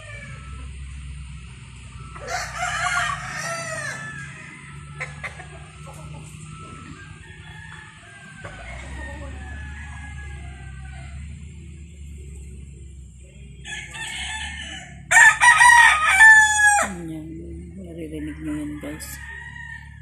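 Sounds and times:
rooster crowing: 0.0s - 0.8s, 2.0s - 11.6s, 13.6s - 17.1s, 18.2s - 20.0s
chickens calling: 0.0s - 20.0s.

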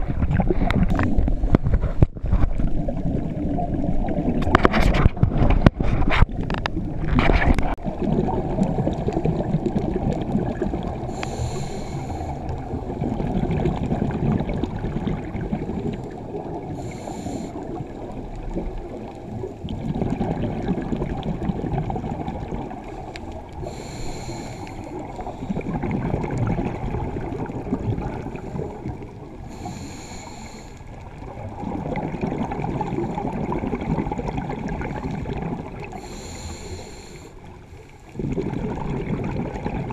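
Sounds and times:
gurgling exhaled bubbles: 0.0s - 39.9s
regulator inhalation hiss: 11.1s - 12.5s, 16.8s - 17.6s, 23.6s - 25.0s, 29.5s - 30.8s, 36.0s - 37.4s.

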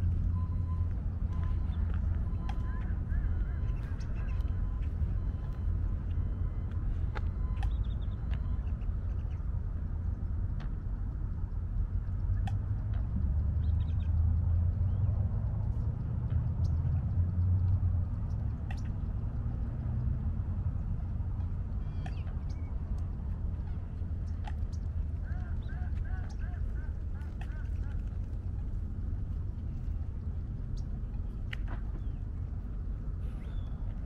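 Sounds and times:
wind buffeting microphone: 0.0s - 34.0s
bird calls: 0.1s - 9.6s, 18.2s - 19.2s, 20.8s - 34.0s.

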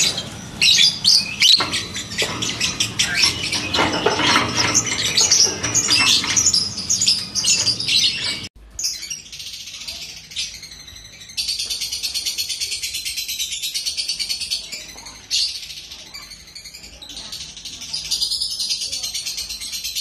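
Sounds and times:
lovebird chirping: 0.0s - 9.2s.

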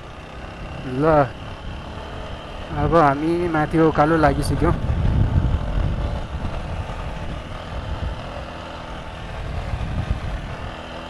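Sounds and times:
motorcycle engine: 0.0s - 11.0s
wind rumble on microphone: 4.2s - 10.8s.

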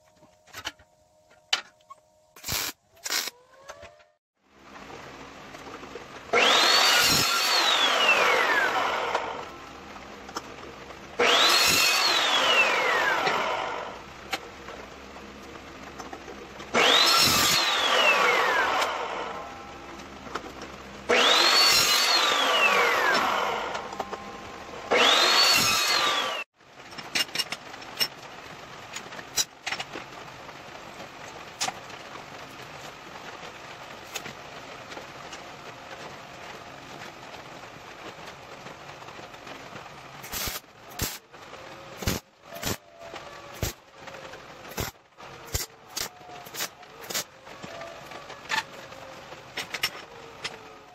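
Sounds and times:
chop saw motor whine: 6.3s - 10.0s, 11.2s - 14.0s, 16.7s - 20.5s, 21.1s - 26.5s.

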